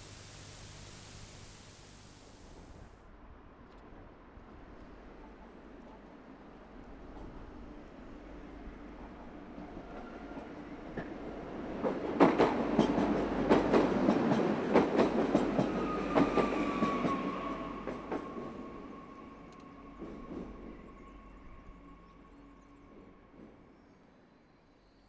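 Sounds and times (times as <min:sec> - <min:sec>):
high whine: 0:00.0 - 0:03.0.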